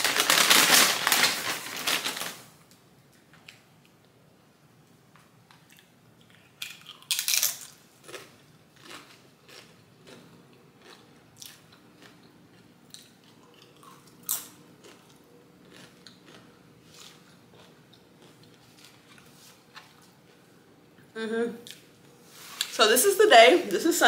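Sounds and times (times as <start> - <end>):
tortilla chips crunching: 0.0 - 2.5, 5.6 - 19.6
chewing crackles: 5.5 - 20.5.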